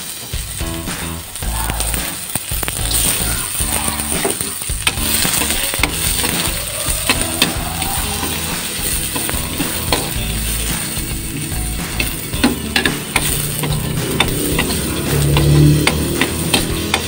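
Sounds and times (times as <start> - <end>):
garlic and onion sizzling in oil: 0.0 - 17.0
spatula tapping and scraping pan: 4.1 - 7.6, 8.2 - 17.0.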